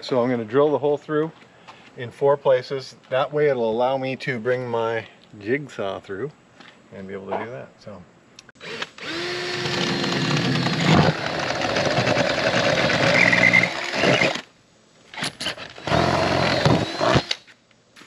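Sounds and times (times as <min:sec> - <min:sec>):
cordless drill boring through metal: 0:08.6 - 0:14.5, 0:15.5 - 0:17.4
drill clicks: 0:08.6 - 0:14.5, 0:15.6 - 0:17.5.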